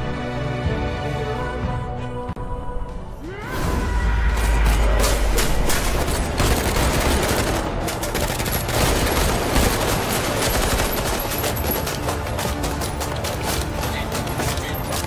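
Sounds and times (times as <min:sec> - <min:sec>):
rapid gunfire: 0:04.8 - 0:15.0.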